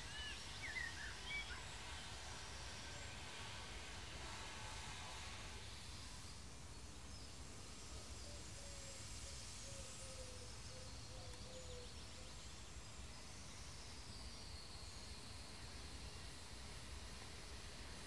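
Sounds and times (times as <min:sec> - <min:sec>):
low rumble and hiss: 0:00.0 - 0:18.0.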